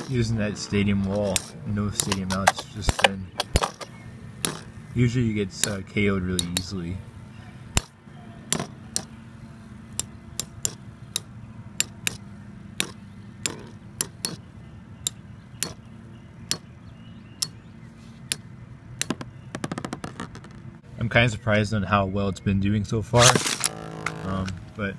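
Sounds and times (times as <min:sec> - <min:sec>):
steady low hum: 0:00.0 - 0:24.9
spinning tops colliding clicks: 0:01.3 - 0:04.8.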